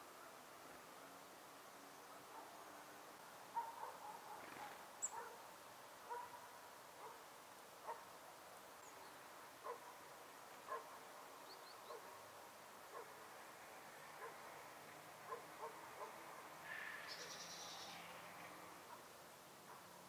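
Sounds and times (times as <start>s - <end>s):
faint short animal calls: 16.6s - 18.1s.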